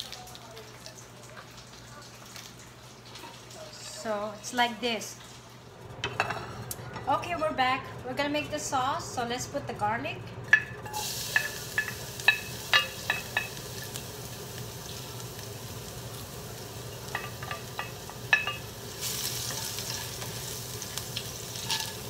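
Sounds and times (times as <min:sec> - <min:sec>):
garlic sizzling in a wok: 0:00.0 - 0:22.0.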